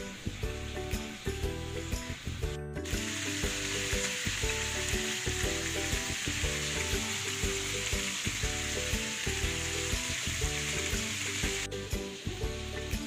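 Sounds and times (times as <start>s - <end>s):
background music with beat: 0.0s - 13.0s
oil sizzling in a pan: 0.0s - 13.0s.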